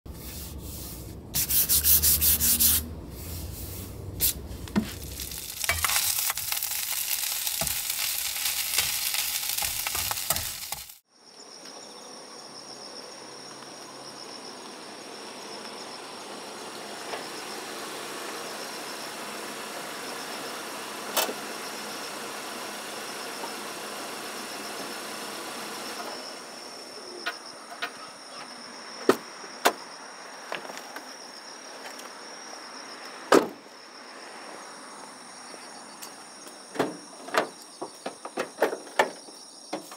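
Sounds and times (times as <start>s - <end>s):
rubbing and scraping on wood: 0.1s - 11.0s
crickets chirping: 1.5s - 25.0s, 25.9s - 39.9s.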